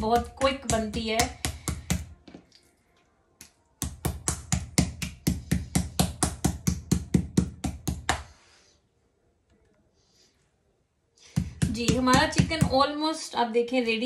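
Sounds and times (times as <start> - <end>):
mallet pounding meat on wood: 0.0 - 2.2, 3.8 - 8.2, 11.4 - 12.8.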